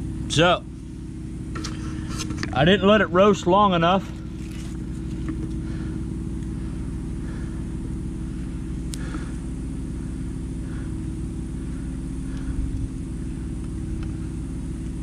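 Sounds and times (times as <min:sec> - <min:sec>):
burner rumble with low hum: 0:00.0 - 0:15.0
steel rod scraping: 0:01.6 - 0:02.6.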